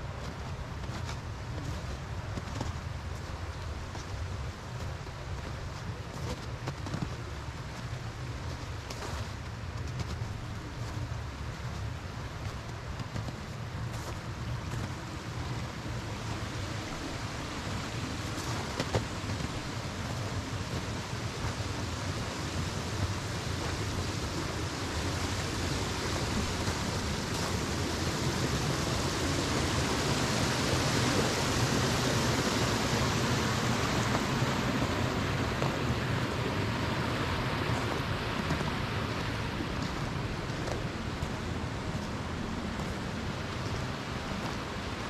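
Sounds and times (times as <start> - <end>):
river water rushing: 0.0 - 45.0.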